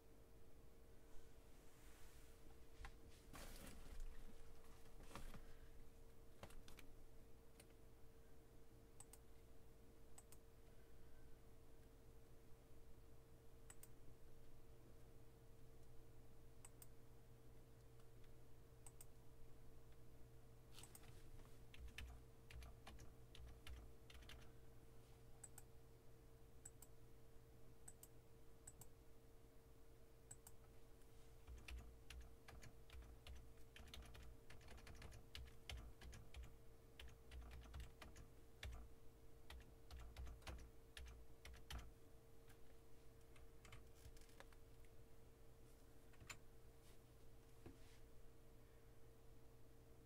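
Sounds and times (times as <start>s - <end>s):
faint electrical hum: 0.0s - 50.0s
typing on computer keyboard: 21.7s - 24.5s, 31.4s - 38.9s, 39.5s - 41.9s, 43.2s - 44.6s.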